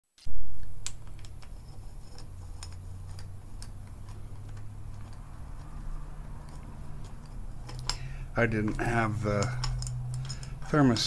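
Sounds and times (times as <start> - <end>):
steady low hum: 0.2 - 11.0.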